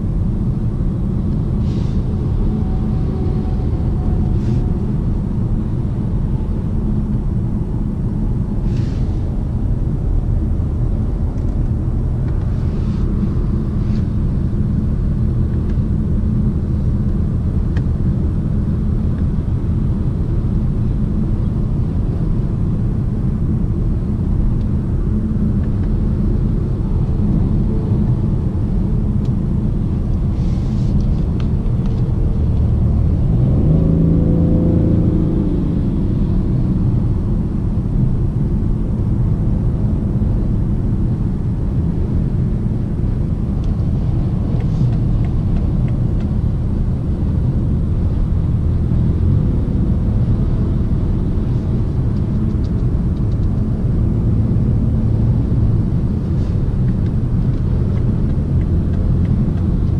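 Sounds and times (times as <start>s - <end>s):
car engine drone: 0.0s - 59.9s
tyre and road noise: 0.0s - 59.9s.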